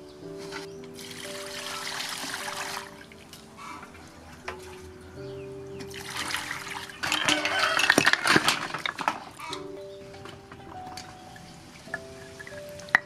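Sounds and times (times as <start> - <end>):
water trickling into steel basin: 1.0 - 3.8, 5.9 - 8.4.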